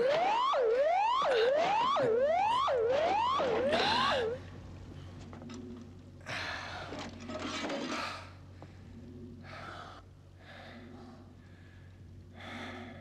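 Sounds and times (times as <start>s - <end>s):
steady low hum: 0.0s - 13.0s
person gasping breaths: 3.7s - 4.4s, 6.2s - 7.0s, 9.5s - 13.0s.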